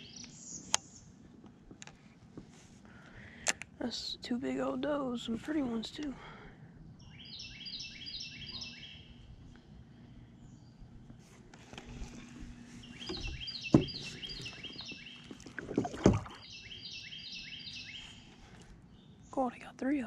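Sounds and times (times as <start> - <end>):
bird singing high phrases: 0.0 - 1.1, 7.0 - 9.2, 12.8 - 15.3, 16.3 - 19.6
paddle strokes in water: 11.2 - 16.5
paddle knocking against hull: 13.0 - 16.4.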